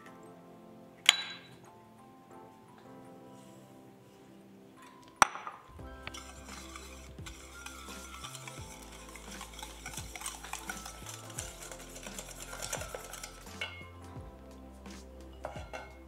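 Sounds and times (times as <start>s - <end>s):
whisk scraping metal pot: 6.0s - 14.0s.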